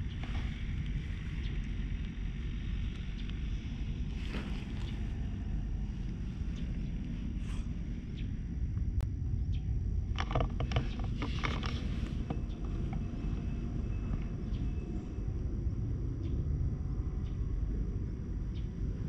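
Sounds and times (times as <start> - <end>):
wind rumble on microphone: 0.0 - 19.0
clothing rustling against camera: 4.1 - 6.8.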